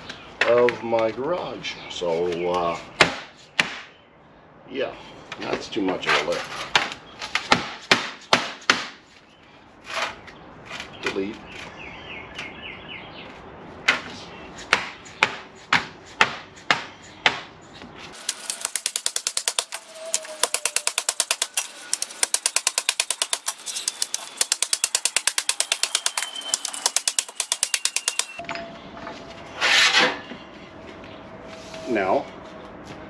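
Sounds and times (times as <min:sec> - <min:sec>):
fast sharp taps: 0:18.2 - 0:19.8, 0:20.4 - 0:28.4
hammer striking sheet metal: 0:18.2 - 0:28.4.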